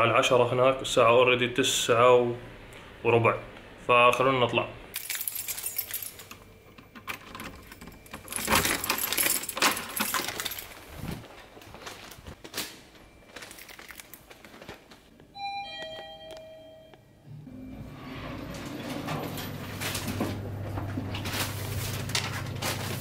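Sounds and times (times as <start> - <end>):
door handle and lock rattling: 5.0 - 10.8
keys jangling: 5.0 - 11.1
elevator chime: 15.3 - 20.7.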